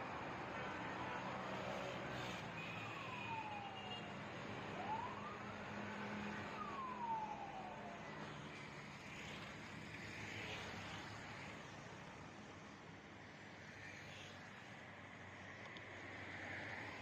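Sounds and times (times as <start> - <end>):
faint siren wailing: 0.5 - 9.5.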